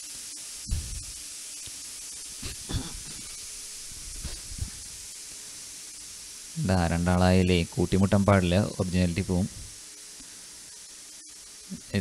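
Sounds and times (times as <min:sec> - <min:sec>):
microphone hiss: 0:00.0 - 0:12.0
soft low thumps: 0:00.6 - 0:01.1, 0:04.0 - 0:04.9.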